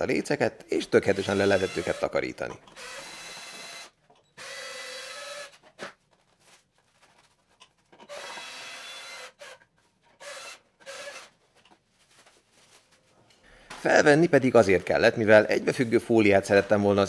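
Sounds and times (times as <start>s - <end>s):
cordless drill running: 1.0s - 2.2s, 2.8s - 5.6s, 8.1s - 9.6s, 10.2s - 11.3s.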